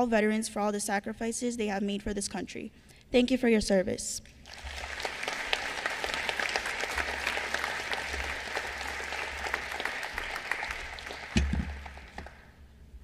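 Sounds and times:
audience applauding: 0:04.4 - 0:12.6.

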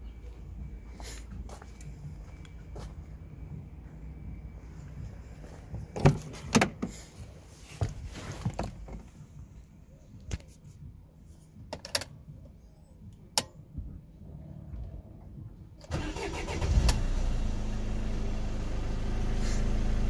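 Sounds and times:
car door opening and shutting: 0:05.9 - 0:07.0.

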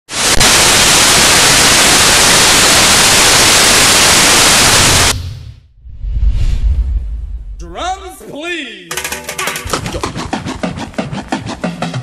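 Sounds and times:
loud static hiss: 0:00.1 - 0:05.2.

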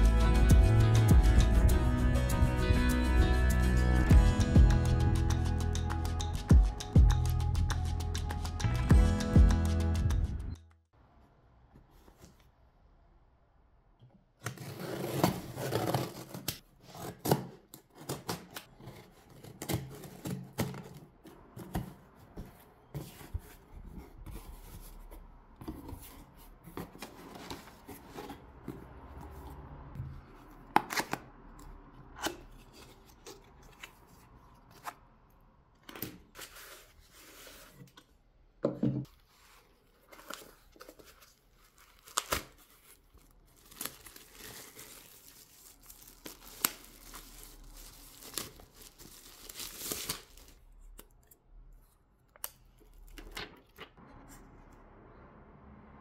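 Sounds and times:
paper and plastic wrap rustling: 0:39.2 - 0:50.8.

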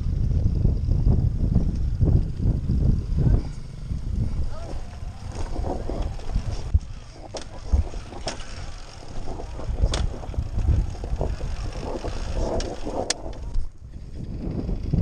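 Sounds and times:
dirt bike engine at low revs: 0:00.0 - 0:15.0
wind on microphone: 0:00.0 - 0:15.0
clicks and knocks on stones: 0:05.2 - 0:13.7.

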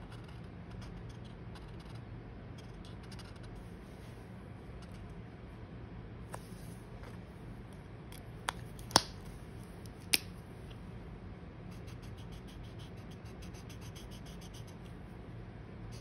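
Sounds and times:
marker scratching on paper: 0:00.0 - 0:02.0, 0:02.6 - 0:03.7, 0:11.7 - 0:14.9.

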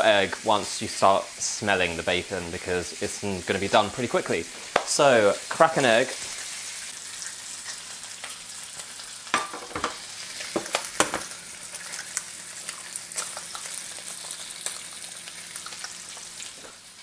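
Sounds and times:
bacon sizzling in a frying pan: 0:00.0 - 0:17.0
frying pan set down on hob: 0:09.4 - 0:10.0, 0:10.6 - 0:11.3.

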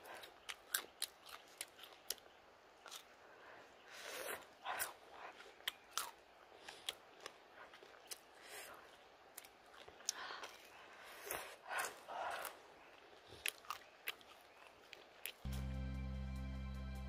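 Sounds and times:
crunchy chewing: 0:00.0 - 0:15.5.

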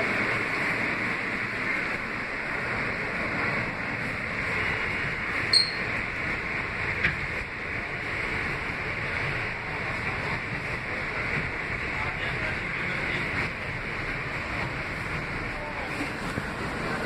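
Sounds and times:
subway car wheels on rails: 0:00.0 - 0:17.0
brief high ring: 0:05.5 - 0:05.9.

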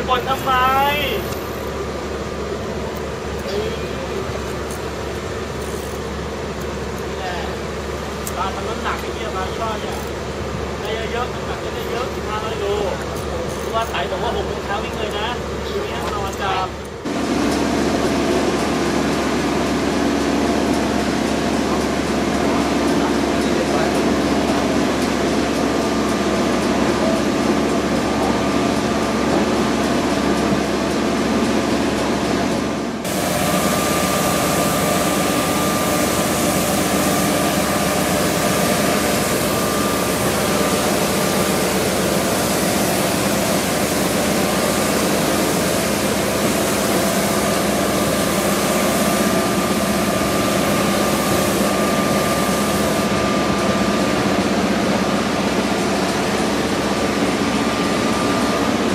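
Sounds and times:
heavy machinery drone: 0:17.0 - 0:58.9
thin high whine: 0:33.0 - 0:58.9.

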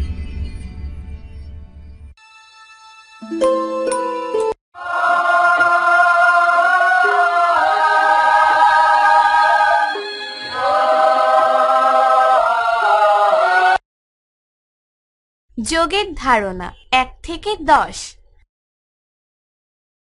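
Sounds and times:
choir singing: 0:04.8 - 0:13.8.

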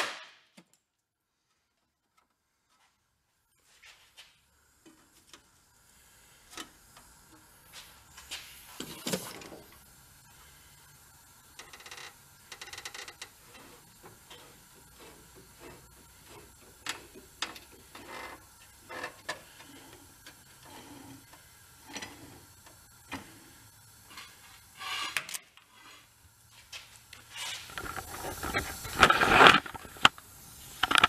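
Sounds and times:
jack clicking and metal creaking: 0:11.6 - 0:22.4.

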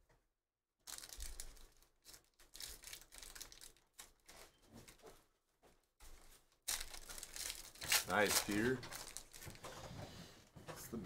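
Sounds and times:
foil pack crinkling and tearing: 0:00.8 - 0:04.4, 0:06.7 - 0:09.6.

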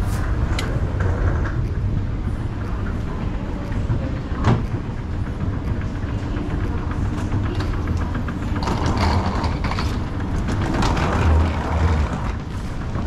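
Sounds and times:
escalator low rumble: 0:00.0 - 0:13.0
wheeled suitcases rattling: 0:03.5 - 0:13.0.

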